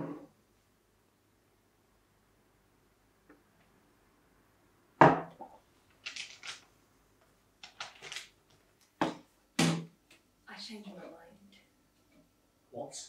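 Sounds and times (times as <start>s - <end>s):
glass knocking on wooden table: 5.0s - 5.3s.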